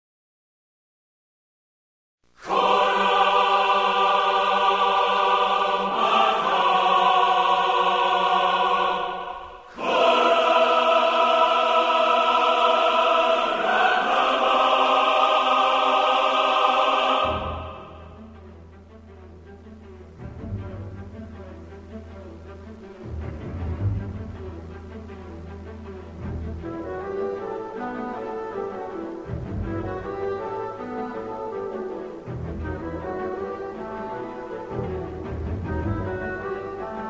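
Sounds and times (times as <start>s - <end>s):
choir singing held chords: 2.4s - 19.0s, 26.1s - 37.0s.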